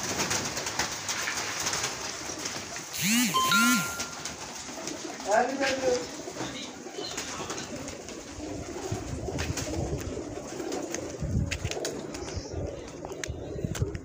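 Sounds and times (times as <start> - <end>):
pigeons cooing: 4.3 - 14.0.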